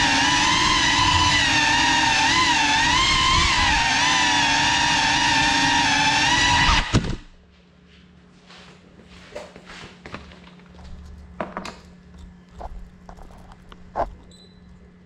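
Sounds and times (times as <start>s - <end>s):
drone motors whining: 0.0s - 7.3s.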